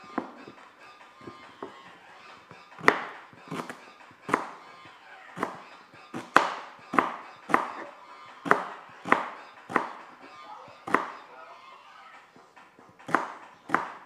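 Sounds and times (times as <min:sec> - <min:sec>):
knife chopping celery: 0:02.8 - 0:04.7, 0:05.4 - 0:10.1, 0:10.8 - 0:11.2, 0:12.9 - 0:14.0.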